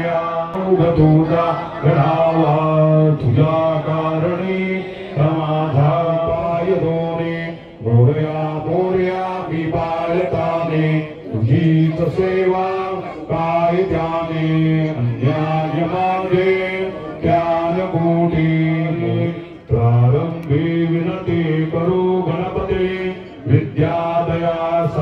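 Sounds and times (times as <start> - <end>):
man chanting: 0.0 - 25.0.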